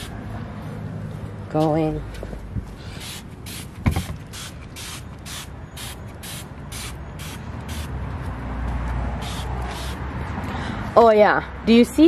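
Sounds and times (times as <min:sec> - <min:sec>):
spray bottle squirting: 0:03.0 - 0:07.9, 0:09.2 - 0:10.0
thump: 0:03.8 - 0:04.2.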